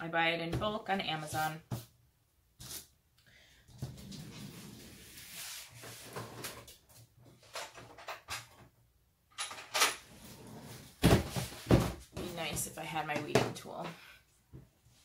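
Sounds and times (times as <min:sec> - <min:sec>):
rustling and scraping on tabletop: 0:03.8 - 0:06.7.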